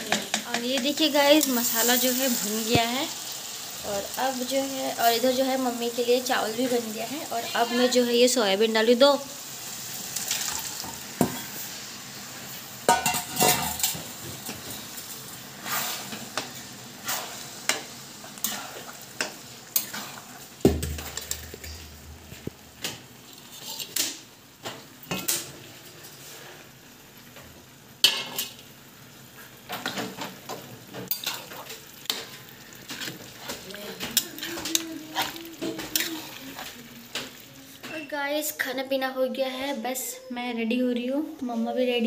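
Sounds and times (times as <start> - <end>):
low sizzle: 0.0 - 42.0
metal spatula scraping a pan: 12.9 - 21.9, 23.2 - 24.2, 29.6 - 38.0.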